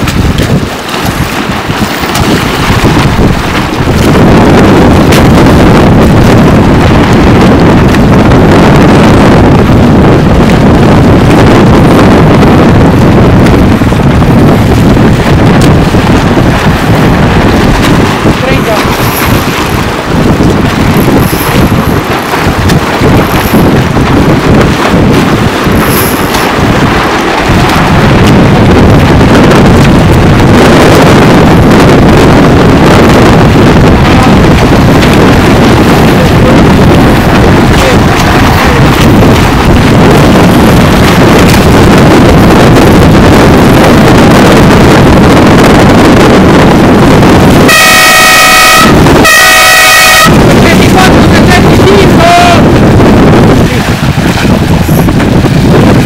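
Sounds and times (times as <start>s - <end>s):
strong wind buffeting microphone: 0.0s - 56.0s
air horn blast: 47.6s - 50.3s.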